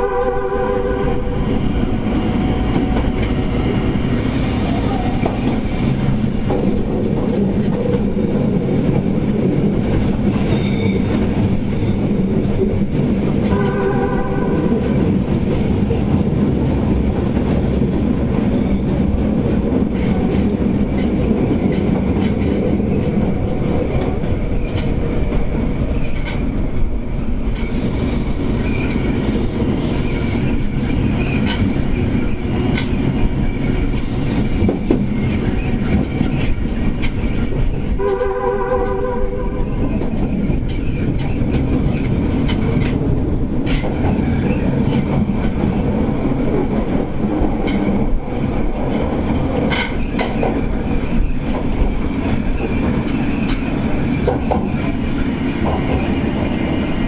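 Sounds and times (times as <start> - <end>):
train horn: 0.0 - 1.5, 13.4 - 15.1, 38.0 - 39.8
train wheels rumbling: 0.0 - 57.0.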